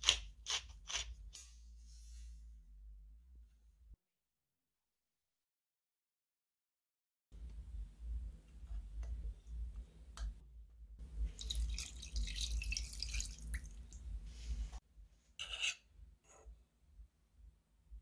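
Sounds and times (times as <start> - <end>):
water pouring into saucepan: 11.3 - 14.0.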